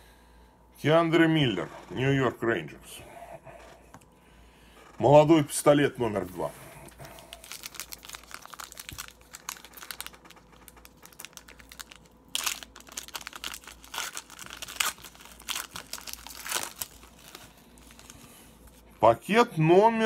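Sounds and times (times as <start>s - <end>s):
foil wrapper crinkling and tearing: 6.9s - 18.9s.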